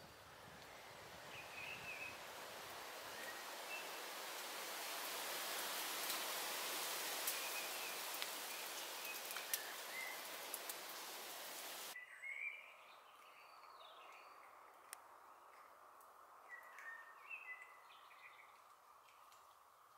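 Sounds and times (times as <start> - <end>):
steady hiss: 0.0 - 12.0
small ticks: 7.2 - 11.1
bird chirps: 7.3 - 11.1, 12.0 - 14.6, 16.4 - 19.3.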